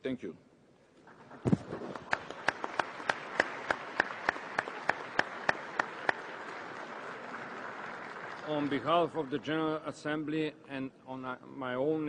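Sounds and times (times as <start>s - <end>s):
audience applauding: 1.1s - 9.5s
person clapping close by: 1.8s - 7.1s.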